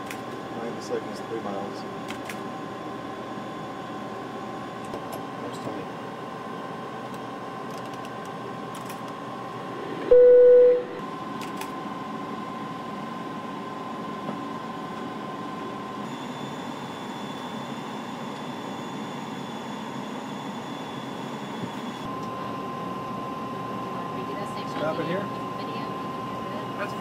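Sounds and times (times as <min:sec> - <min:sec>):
flight deck hum: 0:05.6 - 0:14.6
faint steady tone: 0:10.1 - 0:11.0
loud electronic beep: 0:10.1 - 0:11.0.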